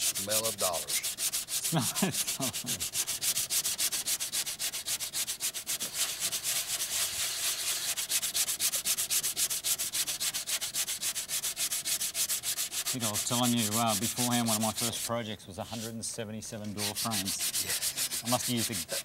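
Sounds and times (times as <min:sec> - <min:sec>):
sandpaper rubbing on filler: 0:00.0 - 0:16.0, 0:16.6 - 0:19.0.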